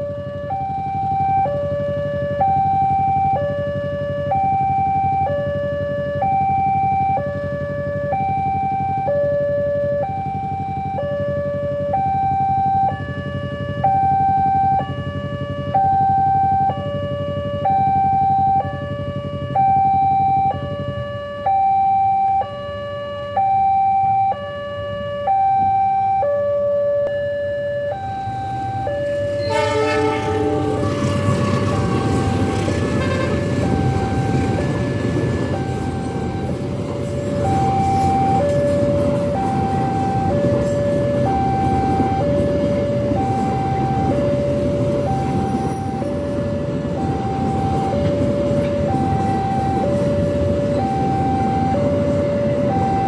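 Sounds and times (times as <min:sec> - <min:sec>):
two-tone level crossing alarm: 0:00.0 - 0:53.0
train rumble: 0:28.2 - 0:53.0
train horn: 0:29.3 - 0:34.4.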